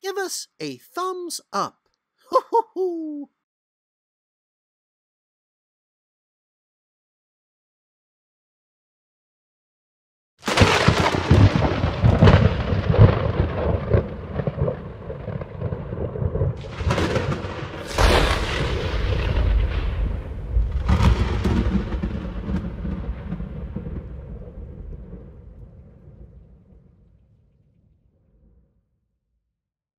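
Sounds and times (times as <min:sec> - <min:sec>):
thunder rumble with cracks: 0:10.4 - 0:27.2.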